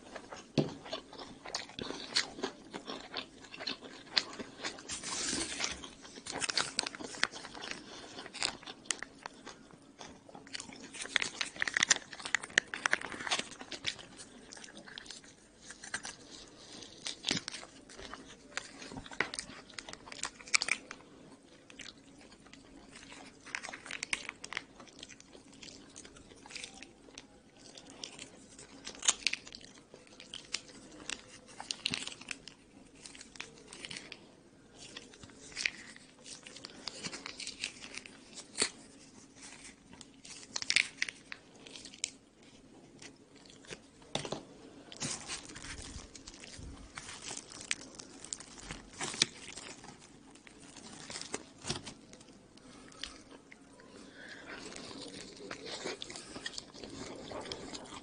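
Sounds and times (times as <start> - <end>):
chewing crusty pizza: 0.0 - 58.0
plastic sachet tearing and squeezing: 4.2 - 9.6, 10.4 - 21.0, 22.5 - 42.2, 44.9 - 53.2.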